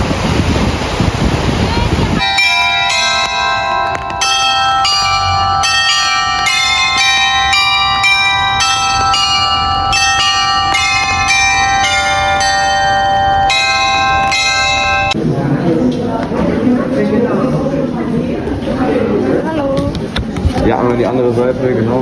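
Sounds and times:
glockenspiel bell melody: 2.2 - 15.2.

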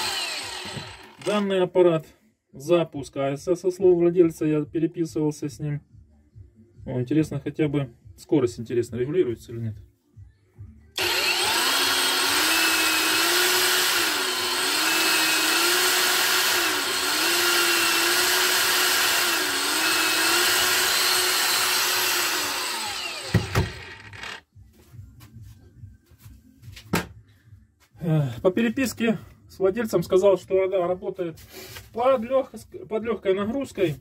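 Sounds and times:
angle grinder whining: 0.0 - 1.4, 11.0 - 24.5
grinder spinning down: 0.0 - 1.4, 11.0 - 24.4
knock: 26.9 - 27.1.

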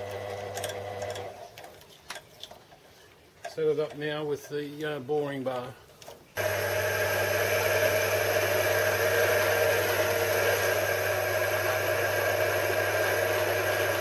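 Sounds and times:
lathe motor hum and whine: 6.4 - 14.0.

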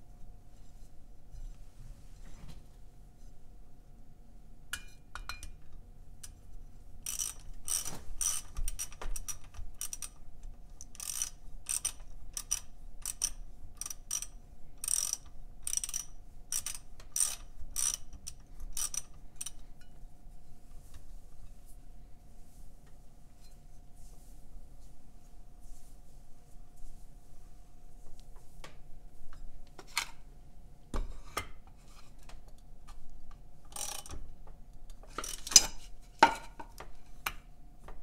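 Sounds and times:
ratchet clicking: 7.0 - 10.2, 10.8 - 19.6, 33.7 - 34.2, 35.2 - 35.7.

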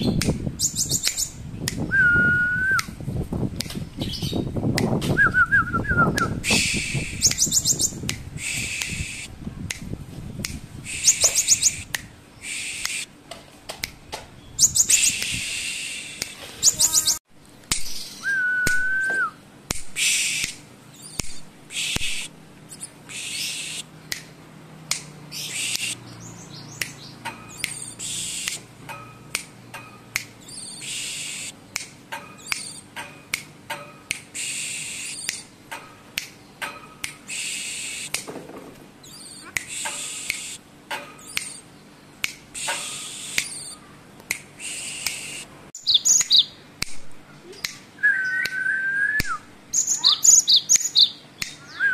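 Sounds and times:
bird singing: 0.0 - 1.4, 5.4 - 9.2, 10.9 - 13.0, 14.4 - 17.2, 25.3 - 33.0, 39.0 - 44.0, 44.6 - 46.6, 47.4 - 51.9
clear whistle: 1.9 - 2.9, 18.2 - 19.4, 48.0 - 49.4.

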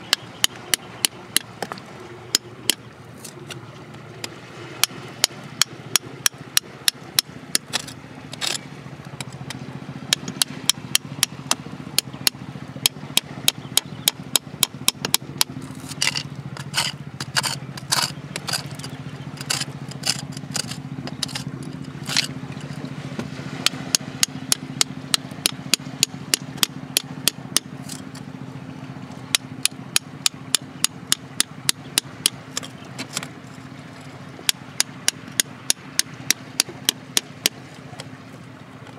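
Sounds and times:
steady low hum: 0.0 - 38.9
hand tool scraping rock: 0.7 - 3.6, 7.2 - 9.5, 14.6 - 22.9, 26.4 - 28.2, 32.0 - 33.3.

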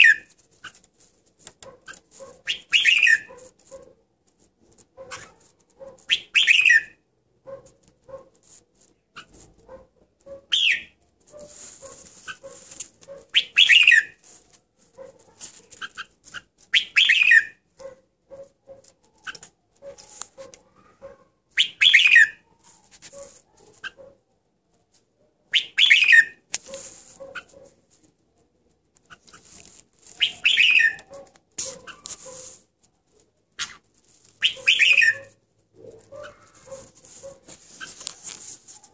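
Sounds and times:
bird singing chirpy phrases: 30.2 - 31.0, 34.4 - 35.3.

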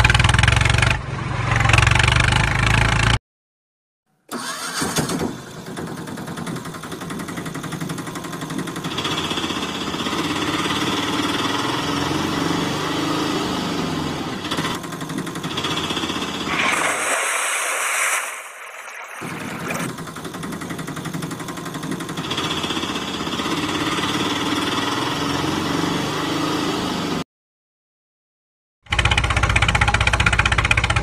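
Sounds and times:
small engine running: 4.3 - 17.1, 19.2 - 27.2.

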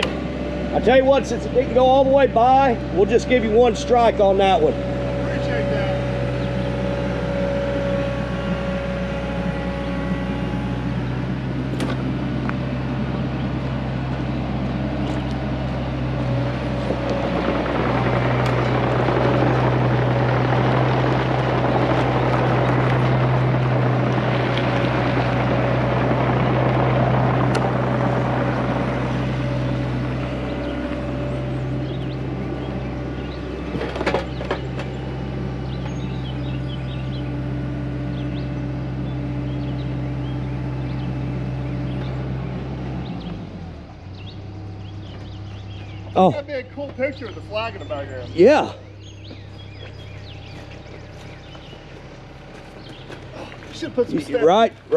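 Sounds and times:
diesel engine running: 0.0 - 54.9
tracks on gravel: 44.9 - 54.9.

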